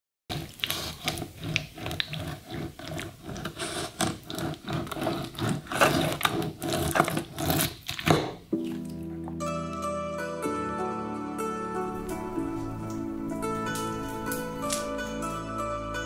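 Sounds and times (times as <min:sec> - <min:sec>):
knife rasping through wax: 0:00.3 - 0:08.1.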